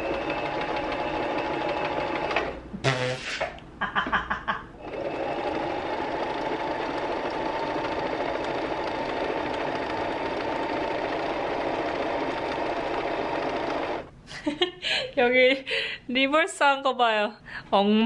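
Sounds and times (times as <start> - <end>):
electric sewing machine running: 0.0 - 2.6, 4.8 - 14.1.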